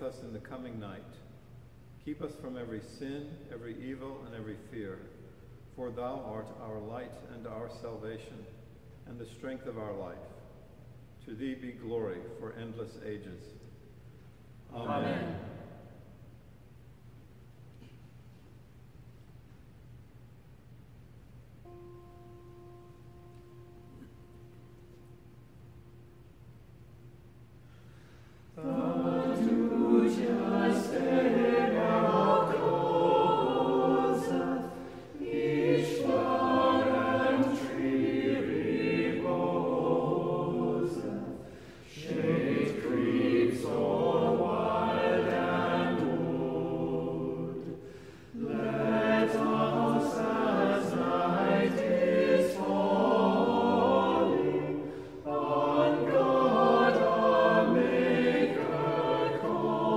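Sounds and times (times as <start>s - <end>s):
a cappella choir singing: 14.7s - 16.1s, 21.6s - 59.9s.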